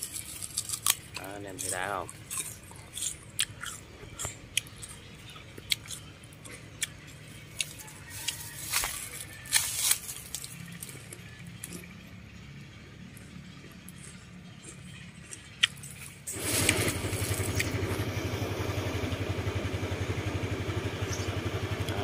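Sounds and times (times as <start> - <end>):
apple crunching bites: 0.0 - 12.0, 13.1 - 17.8
chewing: 0.0 - 12.2, 12.8 - 17.8.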